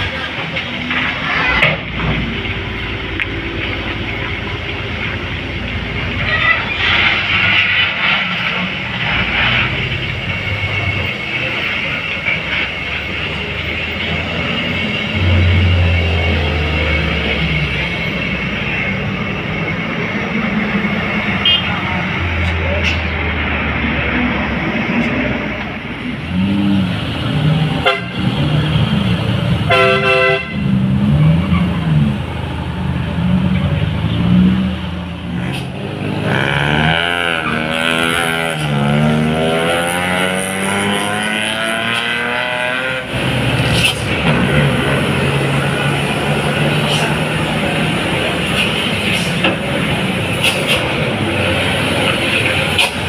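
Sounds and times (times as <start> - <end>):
vehicle engines climbing: 0.0 - 29.7, 30.6 - 53.0
vehicle horn blast: 21.4 - 21.7, 27.8 - 28.2, 29.7 - 30.6.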